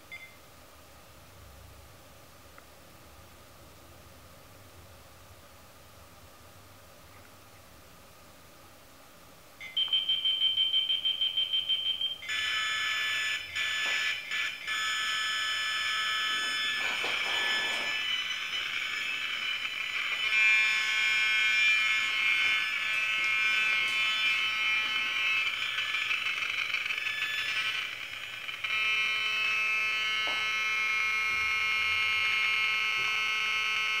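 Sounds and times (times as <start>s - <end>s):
harsh electronic buzz: 12.3s - 34.0s
fast-pulsing high beep: 16.6s - 29.2s.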